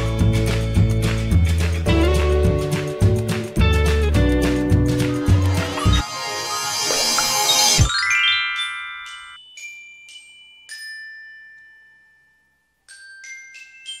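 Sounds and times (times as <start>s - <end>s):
music track: 0.0s - 10.8s
glockenspiel jingle: 5.2s - 14.0s.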